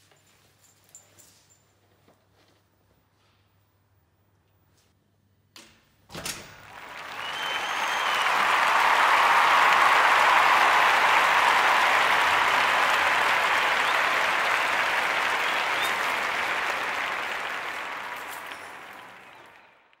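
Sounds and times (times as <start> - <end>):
crowd applause: 6.6 - 20.0.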